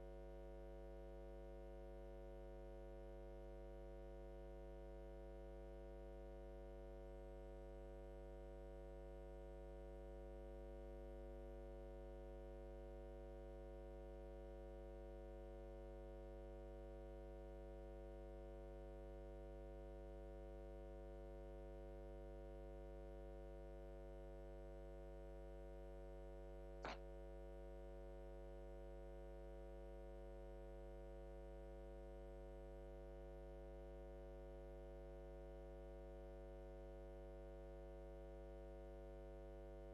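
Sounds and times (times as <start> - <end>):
short click: 26.8 - 27.0.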